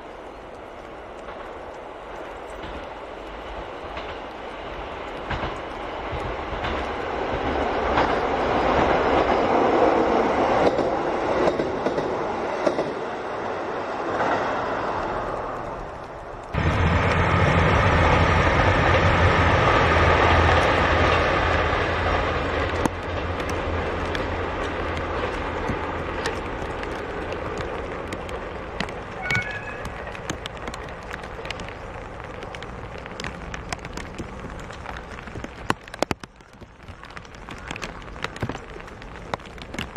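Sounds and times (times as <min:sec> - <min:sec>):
raindrops tapping: 0:00.0 - 0:12.9, 0:14.9 - 0:18.2, 0:20.1 - 0:39.9
rain falling steadily: 0:00.0 - 0:39.9
train wheels rumbling on rail: 0:00.0 - 0:39.9
diesel engine drone: 0:16.6 - 0:25.1.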